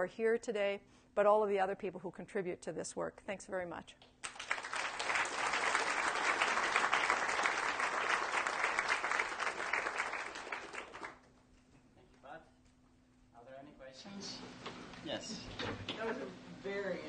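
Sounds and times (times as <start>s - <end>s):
audience applauding: 4.2s - 11.3s.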